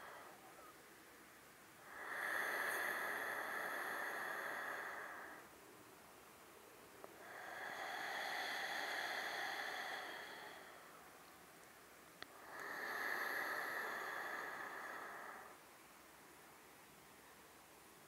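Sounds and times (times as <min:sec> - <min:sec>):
woman breathing deeply: 0:00.0 - 0:00.4, 0:01.8 - 0:05.6, 0:07.2 - 0:11.2, 0:12.2 - 0:15.7.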